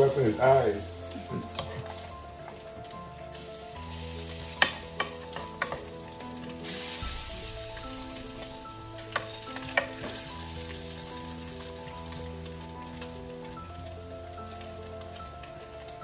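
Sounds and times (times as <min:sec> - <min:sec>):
bacon sizzling in a frying pan: 0:00.0 - 0:16.0
soft background music: 0:00.0 - 0:16.0
wooden spatula knocking on pan: 0:04.5 - 0:05.9.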